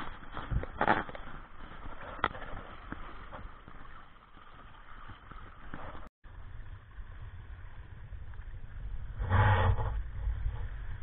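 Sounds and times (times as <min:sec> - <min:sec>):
wind on microphone: 0:05.0 - 0:11.0.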